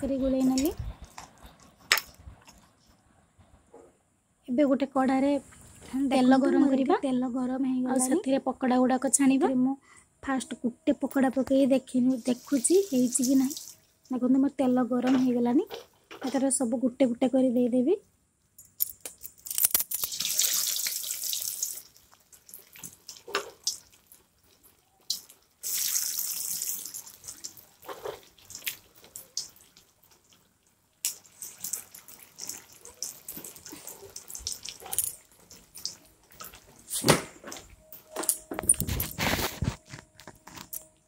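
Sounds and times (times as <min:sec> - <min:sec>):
food sizzling in hot oil: 0:12.1 - 0:13.8, 0:19.9 - 0:24.3, 0:25.1 - 0:30.2
batter hissing into oil: 0:20.0 - 0:30.3.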